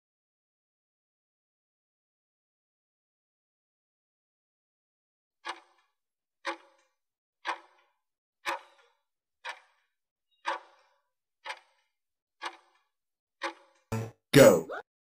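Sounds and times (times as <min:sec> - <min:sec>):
timer ticking with short ring: 0:05.4 - 0:14.1.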